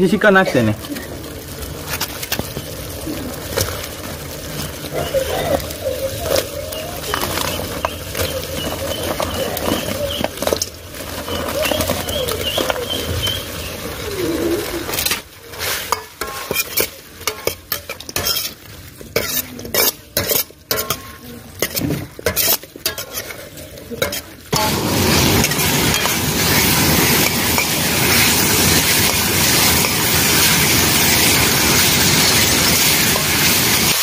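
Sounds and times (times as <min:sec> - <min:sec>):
light frying sizzle: 0:00.0 - 0:34.0
ladle scraping metal pan: 0:14.8 - 0:34.0.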